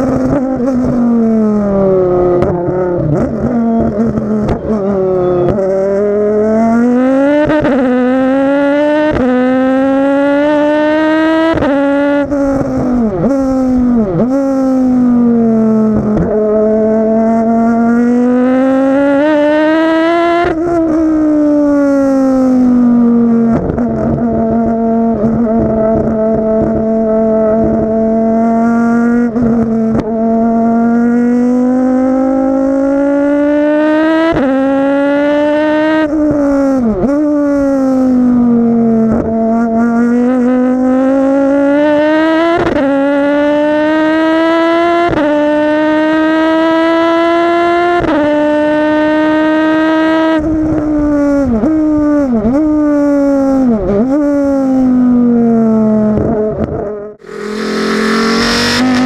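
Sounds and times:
race car engine revving: 0.0 - 38.2, 57.2 - 59.0.

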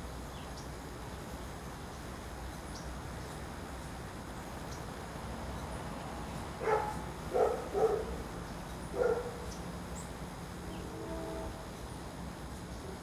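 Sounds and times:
dog barking: 6.6 - 8.2, 8.9 - 9.4.

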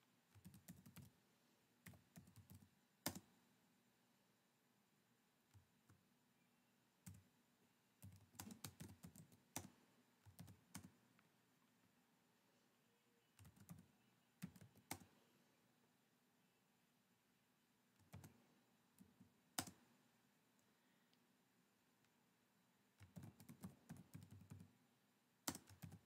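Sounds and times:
faint keyboard typing: 0.2 - 1.2, 1.8 - 3.5, 5.4 - 6.1, 7.0 - 11.4, 13.3 - 15.4, 17.9 - 21.3, 22.9 - 24.8, 25.4 - 26.0.

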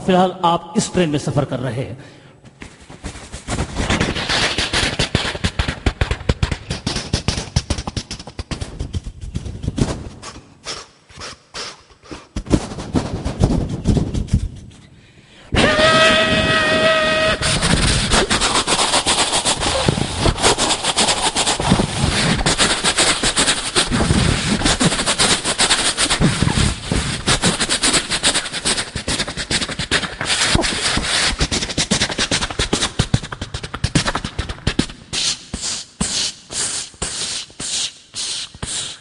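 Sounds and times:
vocal train horn imitation: 15.6 - 17.6.

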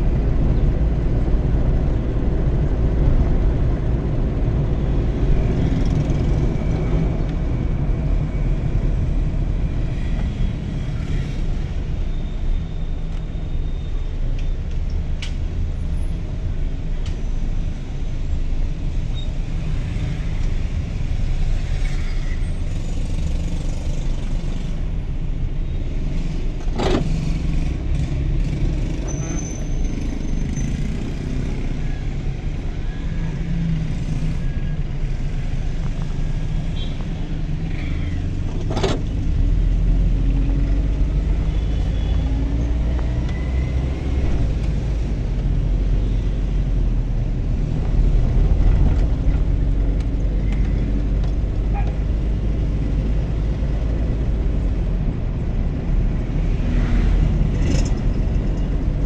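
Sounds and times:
car engine and tyres rumbling: 0.0 - 59.0.

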